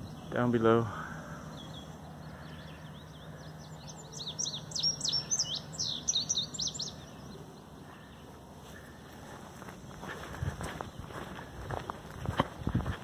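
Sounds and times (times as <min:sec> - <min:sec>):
songbird singing high chirps: 0:00.0 - 0:09.1
faint bird calls: 0:00.0 - 0:09.4.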